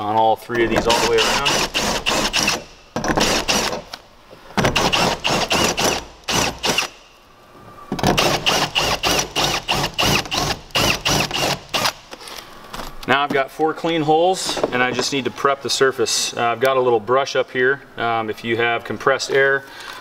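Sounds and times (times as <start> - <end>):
cordless drill whine: 4.8 - 7.0, 8.2 - 12.0.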